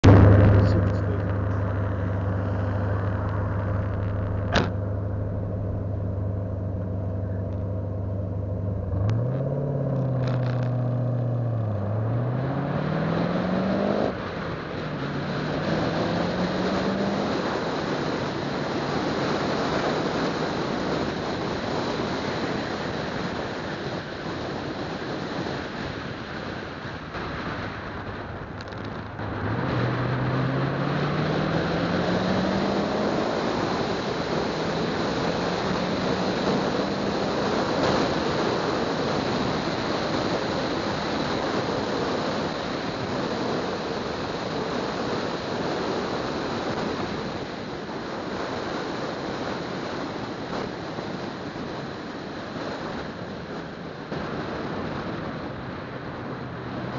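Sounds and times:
car engine: 0.0 - 56.9
road and wind noise: 0.0 - 56.9
sharp click: 4.2 - 4.8.

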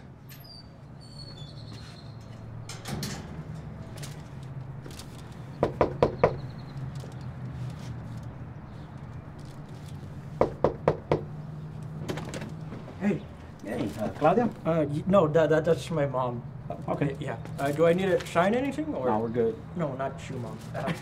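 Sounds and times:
knocking on a door: 5.6 - 6.4, 10.4 - 11.3.

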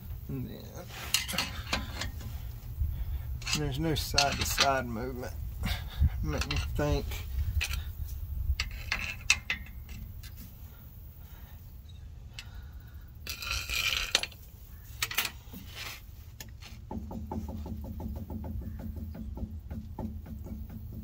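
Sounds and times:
pry bar clinking on metal: 1.1 - 2.2.

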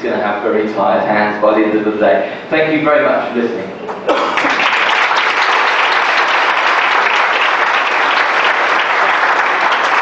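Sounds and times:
audience applauding: 4.1 - 10.0.

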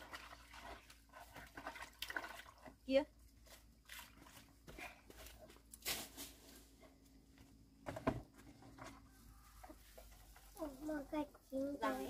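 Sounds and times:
sharp rustle: 5.8 - 6.8
plastic basin knocks and handling: 7.8 - 9.0.

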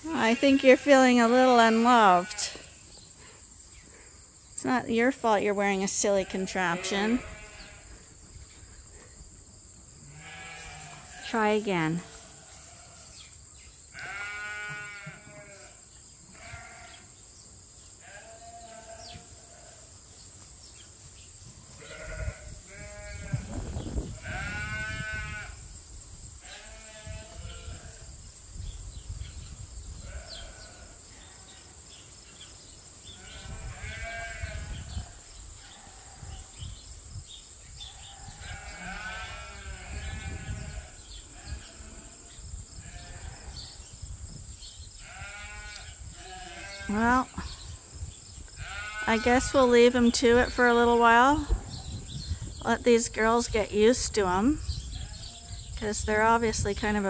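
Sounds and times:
sheep bleating: 0.0 - 2.7, 6.3 - 7.8, 10.1 - 13.0, 13.9 - 17.0, 18.0 - 19.8, 21.8 - 23.5, 24.2 - 25.6, 26.4 - 28.0, 30.0 - 31.4, 33.2 - 36.4, 38.0 - 43.6, 45.0 - 47.5, 48.6 - 49.6.

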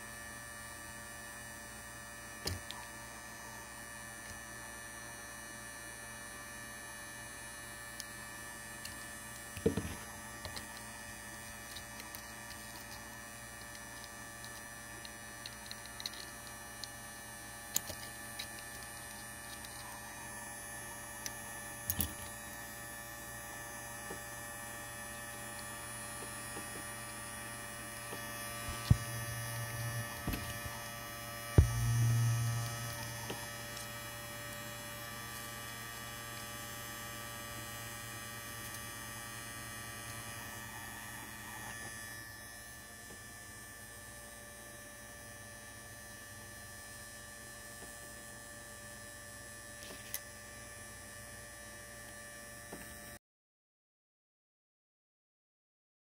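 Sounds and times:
hot air gun fan humming: 0.0 - 44.2.

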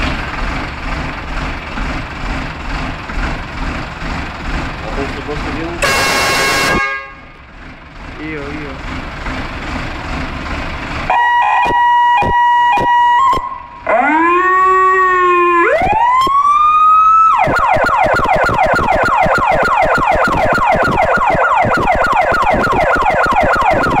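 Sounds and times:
fire truck electronic siren: 5.8 - 7.1, 11.1 - 24.0.

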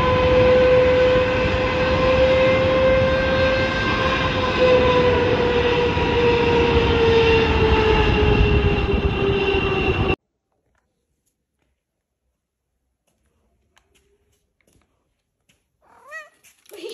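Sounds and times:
jet engines roaring: 0.0 - 10.2.

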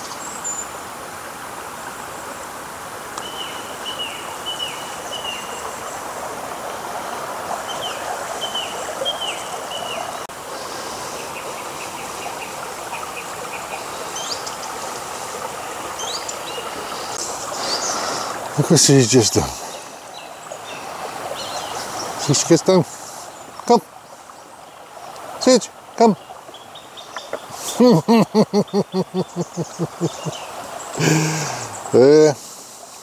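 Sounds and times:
river running over gravel: 0.0 - 33.0
small bird calling: 7.1 - 18.4, 19.1 - 32.2.

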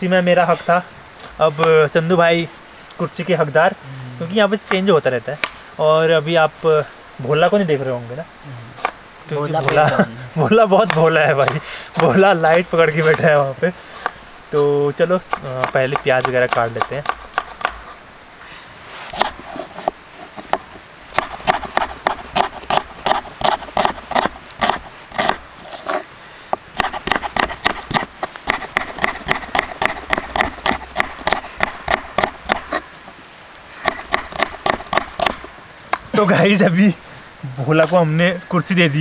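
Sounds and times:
knife slicing onions on board: 19.1 - 20.6, 21.2 - 26.0, 26.8 - 32.8, 33.8 - 35.4.

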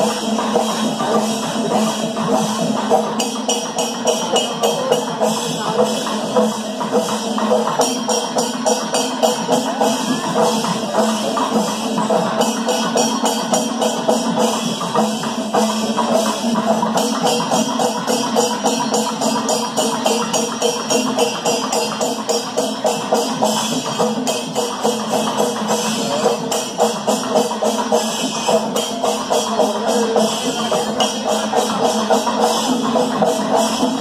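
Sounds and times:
drums beating fast: 0.0 - 34.0
jingling hand cymbals: 0.0 - 34.0.

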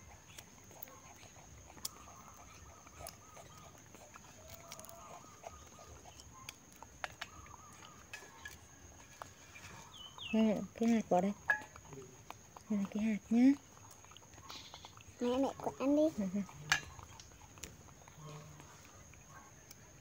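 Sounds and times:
shells cracking as peeled: 3.5 - 5.6.

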